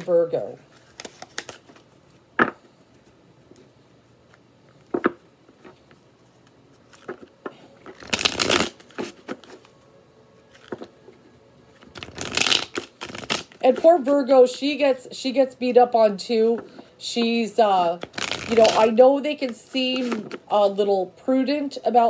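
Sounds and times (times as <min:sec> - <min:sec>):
cards riffling together: 0:00.8 - 0:01.8, 0:06.4 - 0:09.7, 0:11.8 - 0:13.7, 0:18.0 - 0:18.9.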